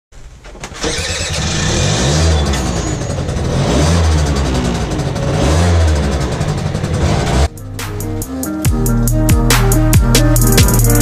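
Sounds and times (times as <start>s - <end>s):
moped engine revving: 0.7s - 7.7s.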